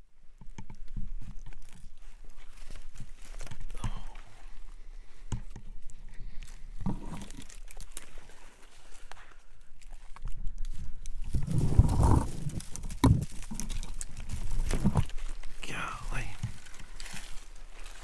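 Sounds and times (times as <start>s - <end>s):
twigs rustling: 0.4s - 18.0s
footsteps crunching through dry leaves: 6.3s - 18.0s.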